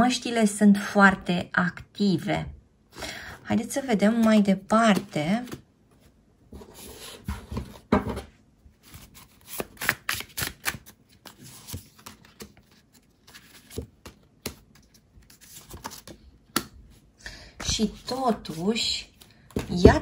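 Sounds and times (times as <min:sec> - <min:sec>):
cards clicking and tapping: 0:13.5 - 0:15.0.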